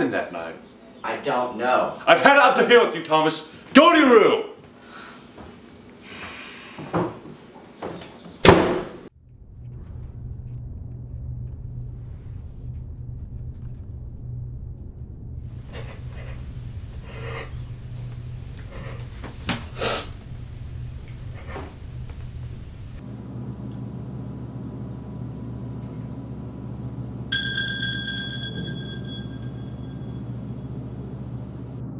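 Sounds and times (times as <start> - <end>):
door slamming shut: 8.4 - 9.1
steady low hum: 9.1 - 31.9.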